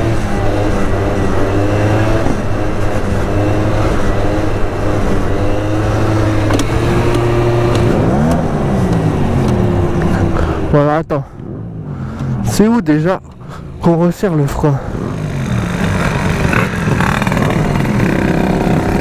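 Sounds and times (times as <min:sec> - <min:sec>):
two-stroke scooter engine running: 0:14.8 - 0:19.0.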